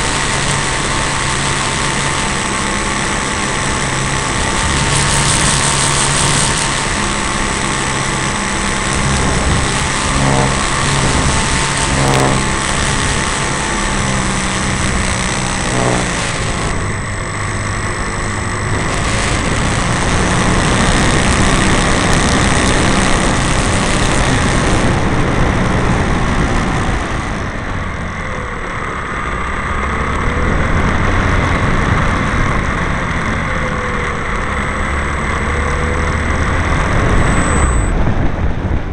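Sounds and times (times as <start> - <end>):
rush of air: 0.0 - 28.3
model plane motor and propeller: 0.0 - 38.9.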